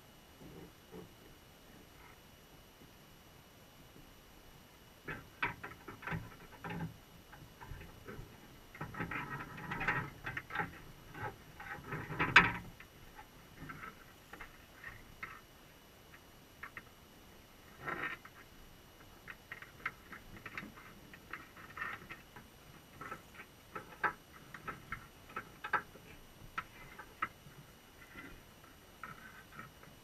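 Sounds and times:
crabs scraping on wire mesh underwater: 5.0s - 15.5s, 17.6s - 18.5s, 19.2s - 30.0s.

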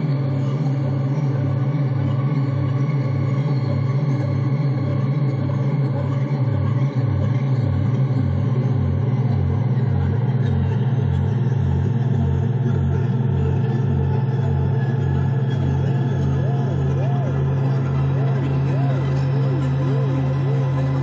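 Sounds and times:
layered hum of held tones: 0.0s - 21.0s
pulsing deep bass tone: 0.0s - 21.0s.

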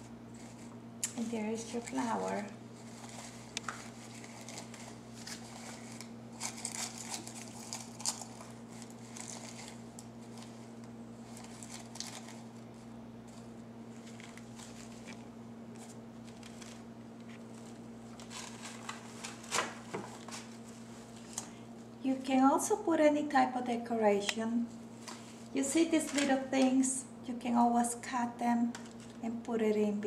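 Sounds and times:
rustling artificial petals: 0.0s - 22.7s, 24.5s - 27.0s.

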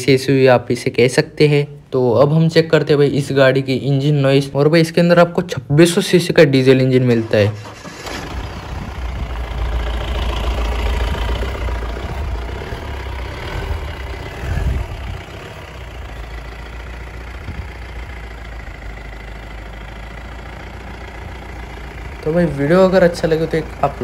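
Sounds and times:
diesel engine idling: 5.9s - 24.0s.

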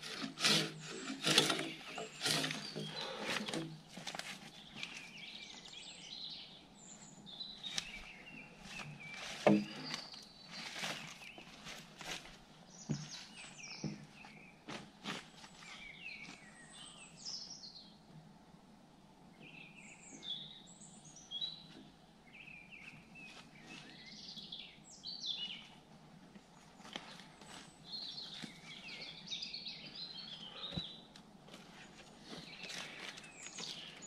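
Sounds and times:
footsteps on bark shavings: 0.0s - 5.8s, 7.6s - 16.6s, 22.8s - 24.2s, 26.4s - 29.2s, 29.9s - 34.0s
songbirds chirping: 0.0s - 34.0s.

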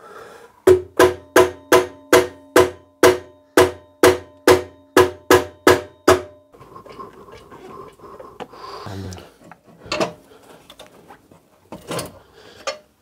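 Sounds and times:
mallet tapping on metal cover: 0.7s - 6.4s.

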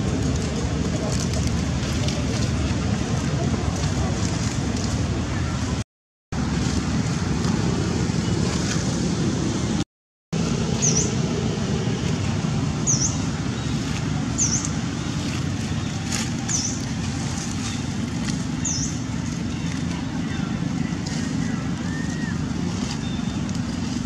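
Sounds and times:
wind buffeting microphone: 0.0s - 9.8s.

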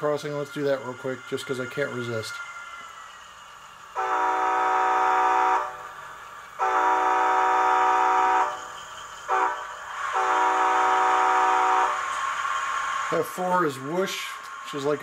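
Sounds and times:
model train horn blasts: 4.0s - 5.9s, 6.6s - 8.6s, 9.3s - 12.0s.

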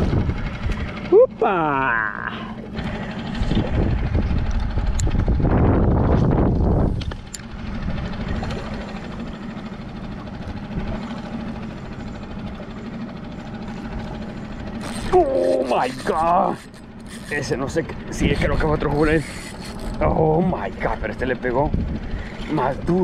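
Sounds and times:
wind buffeting microphone: 0.0s - 1.2s, 3.2s - 8.5s, 17.4s - 19.3s, 19.9s - 23.0s
steady low hum: 0.0s - 23.0s.

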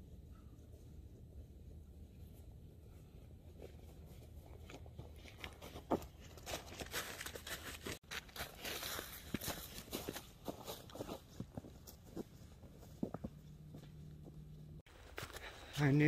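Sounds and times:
footsteps crunching dry leaves: 5.0s - 11.4s.

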